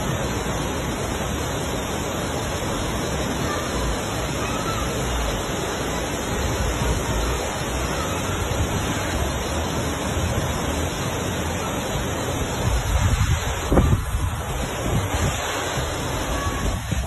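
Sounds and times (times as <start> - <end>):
floodwater rushing: 0.0 - 17.0
wind gusts on microphone: 8.4 - 17.0.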